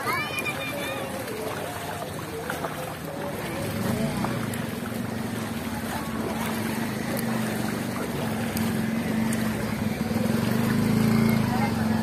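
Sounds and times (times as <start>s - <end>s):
motorcycle engine running: 3.5s - 12.0s.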